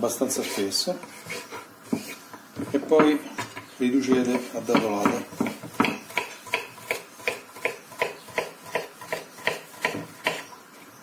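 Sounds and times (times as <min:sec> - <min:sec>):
knife chopping on wooden board: 0:04.1 - 0:10.5.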